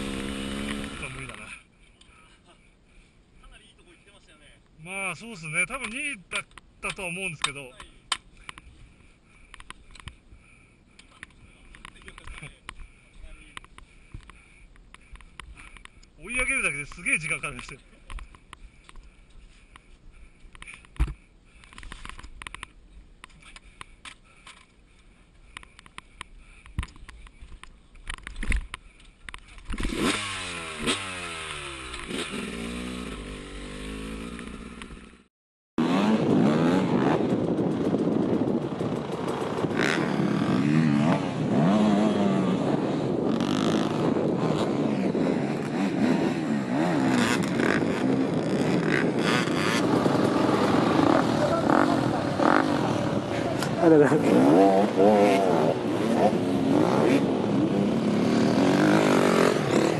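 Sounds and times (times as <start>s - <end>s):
dirt bike engine revving: 0.0s - 1.6s, 29.7s - 59.9s
several dirt bikes revving hard: 0.0s - 1.6s, 29.7s - 35.2s, 35.8s - 59.9s.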